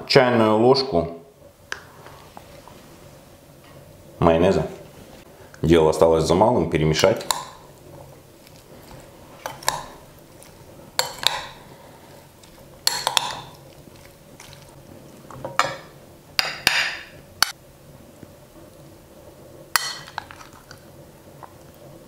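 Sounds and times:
spoon scraping a plate: 8.4 - 14.6
spoon clinking on glass bowl: 12.8 - 13.6.

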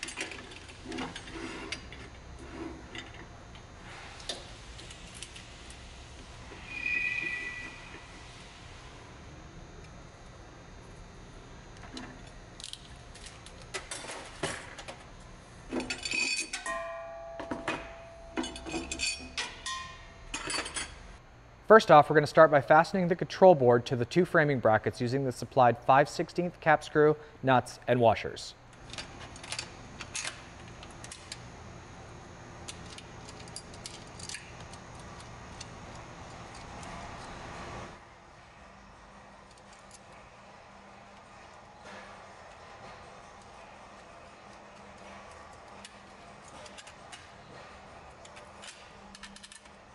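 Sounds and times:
steady low hum: 0.0 - 49.9
metal tools clinking on steel: 15.7 - 21.0.

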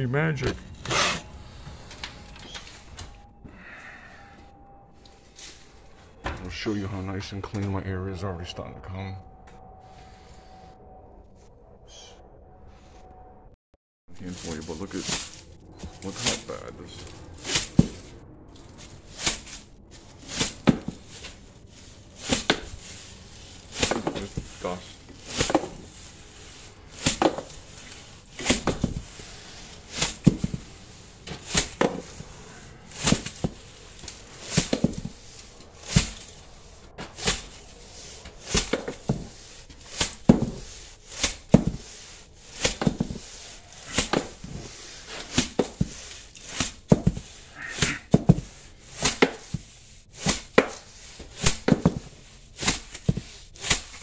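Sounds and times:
hand scraper scraping a sill: 0.8 - 1.3, 19.1 - 32.3, 37.1 - 54.0.

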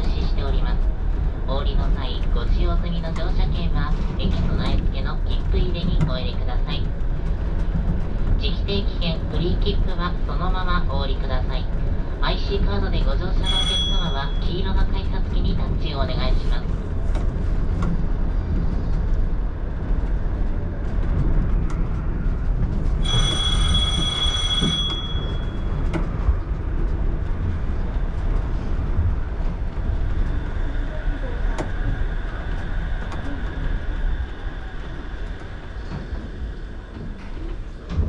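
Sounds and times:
monorail car rumbling: 0.0 - 38.0
high ringing tone: 13.4 - 14.6, 23.0 - 25.7.

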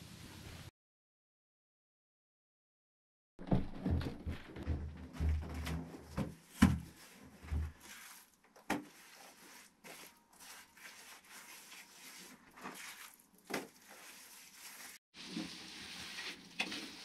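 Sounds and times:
hands scraping soil: 6.4 - 17.0.

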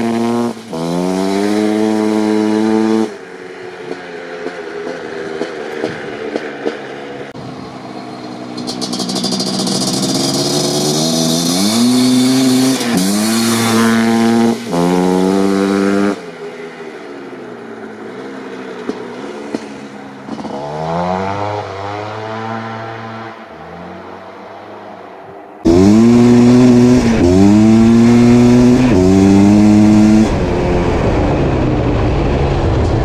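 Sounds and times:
two-stroke engine revving hard: 0.0 - 3.2, 8.6 - 16.3, 20.3 - 23.6, 25.6 - 32.0.

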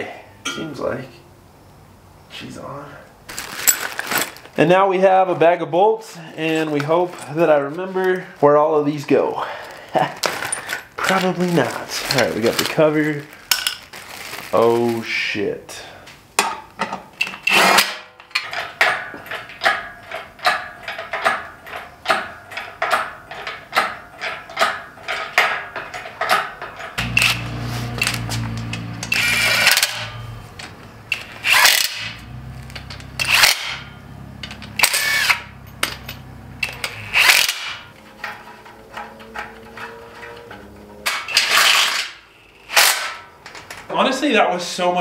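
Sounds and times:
metal clicks and clinks: 28.0 - 41.8
cordless drill-driver spinning: 29.1 - 30.0, 34.8 - 35.4.

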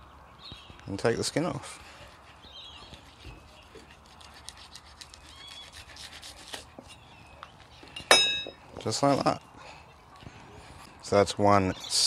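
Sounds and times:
knife scratching fish skin: 2.0 - 7.1.

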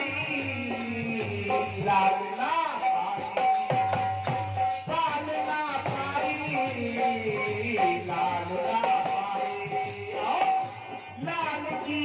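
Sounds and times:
man singing: 0.0 - 4.0, 4.6 - 12.0
hand drum rhythm: 0.0 - 12.0.

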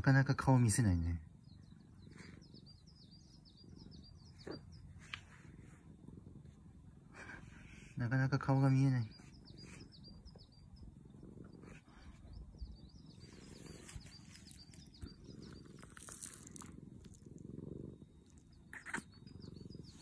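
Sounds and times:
bird chirping: 0.0 - 5.9, 7.2 - 20.0
cat purring: 0.0 - 20.0.

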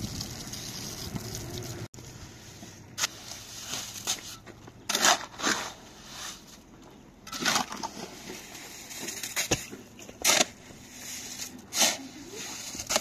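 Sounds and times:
shovel scraping wet cement: 2.4 - 6.6, 7.3 - 13.0.

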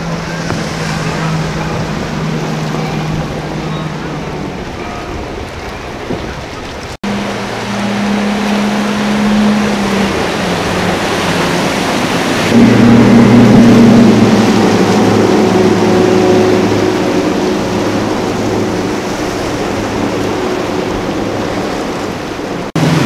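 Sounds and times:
boat outboard motors running: 0.0 - 23.0
rushing water: 0.0 - 23.0
wind: 0.0 - 23.0.

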